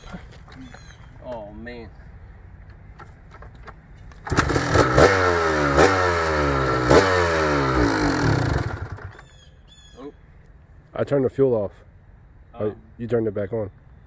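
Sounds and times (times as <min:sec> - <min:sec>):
motorcycle engine starting and revving: 0:04.1 - 0:09.5.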